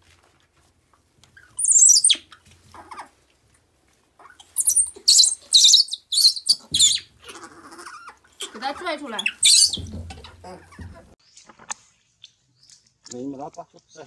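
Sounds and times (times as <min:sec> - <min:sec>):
baby monkey screeching: 0:01.5 - 0:02.9, 0:04.2 - 0:10.9.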